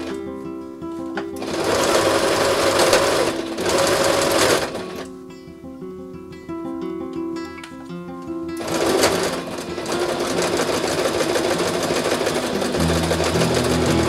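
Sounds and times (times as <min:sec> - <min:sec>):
background music: 0:00.0 - 0:14.0
sewing machine running: 0:01.4 - 0:05.0, 0:08.6 - 0:14.0.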